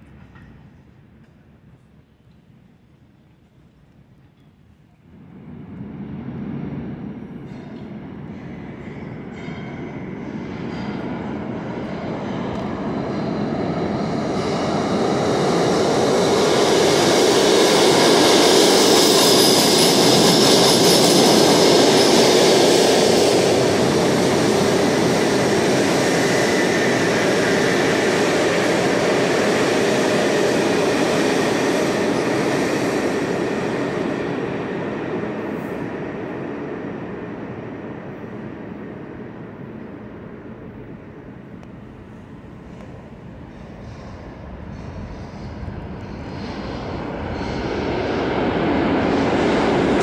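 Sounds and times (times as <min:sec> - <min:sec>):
subway train rumbling past: 0:00.0 - 0:50.0.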